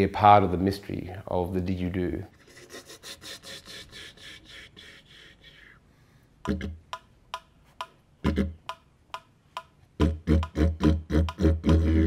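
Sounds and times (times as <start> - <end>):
breathy rasping: 2.3 - 6.8
staccato didgeridoo pops: 6.4 - 8.9, 9.6 - 12.0.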